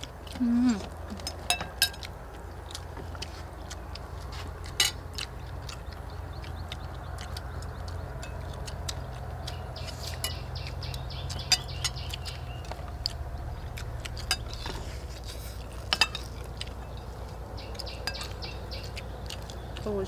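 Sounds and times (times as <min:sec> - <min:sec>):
steady low rumble: 0:00.0 - 0:20.0
metal spoons clinking on plates: 0:01.3 - 0:02.0, 0:15.9 - 0:17.1.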